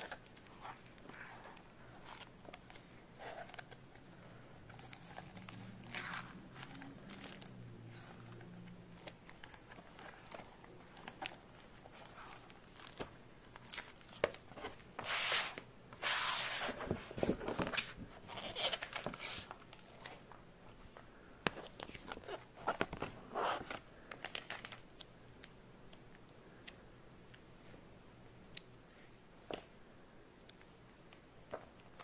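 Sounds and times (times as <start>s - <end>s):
magazine pages rustling: 0.0s - 25.1s.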